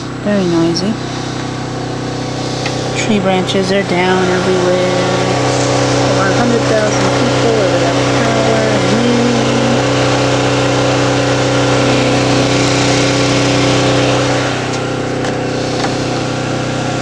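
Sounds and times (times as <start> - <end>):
generator engine running: 0.0 - 17.0.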